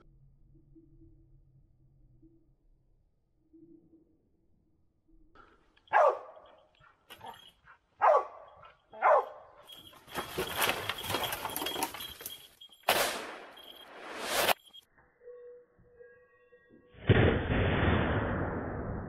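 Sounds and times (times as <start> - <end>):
hounds barking: 5.9 - 9.8.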